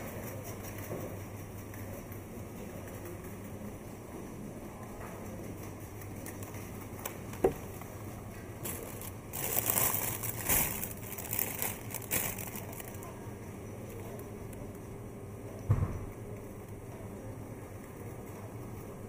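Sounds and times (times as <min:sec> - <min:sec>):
steady low hum: 0:00.0 - 0:19.0
crackling rustling noise: 0:05.6 - 0:14.8.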